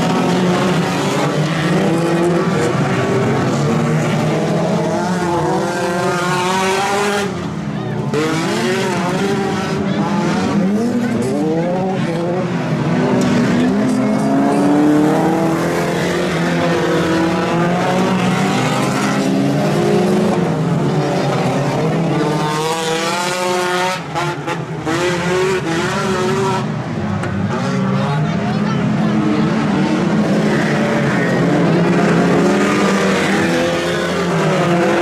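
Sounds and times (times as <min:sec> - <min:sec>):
race car engines revving: 0:00.0 - 0:35.0.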